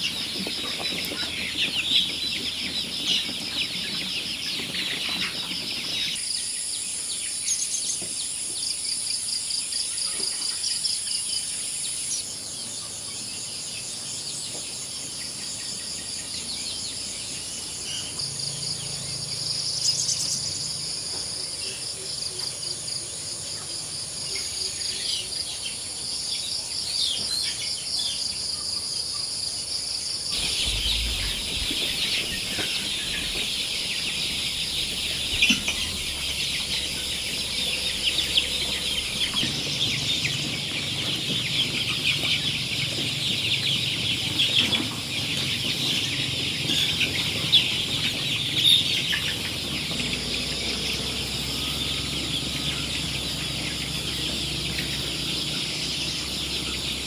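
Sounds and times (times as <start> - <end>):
chickens calling: 0.0 - 57.0
insects trilling: 5.2 - 40.7.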